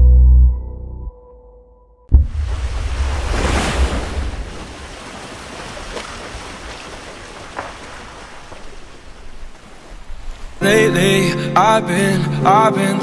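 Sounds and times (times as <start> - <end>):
ocean waves washing: 2.1 - 13.0.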